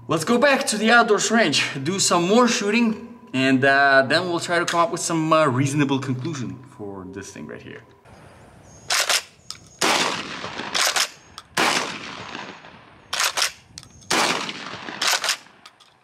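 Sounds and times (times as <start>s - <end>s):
shotgun shots echoing: 8.9s - 15.7s.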